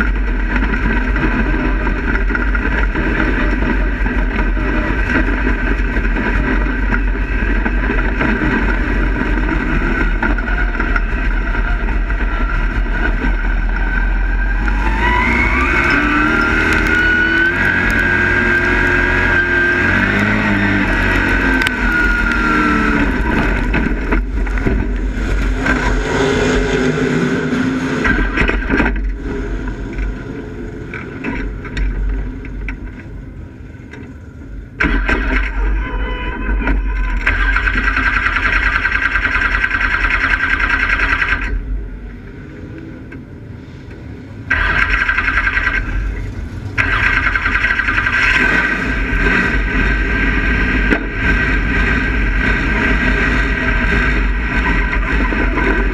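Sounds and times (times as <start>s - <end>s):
race car engine revving: 0.0s - 32.7s, 44.4s - 55.9s.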